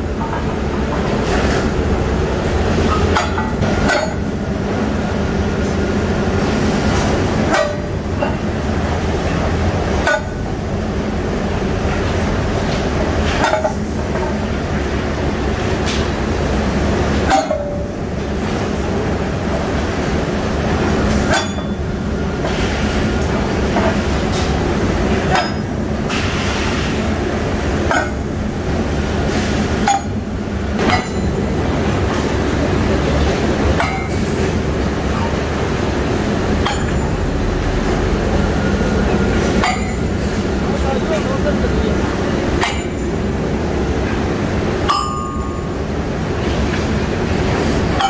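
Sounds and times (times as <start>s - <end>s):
rolling mill rumble: 0.0s - 48.0s
sledgehammer clanking on steel: 2.9s - 4.3s, 10.0s - 10.4s, 17.2s - 17.8s, 21.3s - 21.8s, 25.3s - 26.2s, 27.9s - 28.2s, 29.8s - 30.2s, 30.8s - 31.3s, 36.6s - 37.2s, 39.6s - 40.1s, 42.6s - 43.1s.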